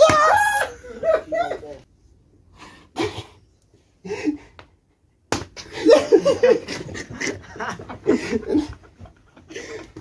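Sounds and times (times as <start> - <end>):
men laughing: 0.6 - 1.8, 5.6 - 10.0
slaps and knocks: 5.3 - 5.7.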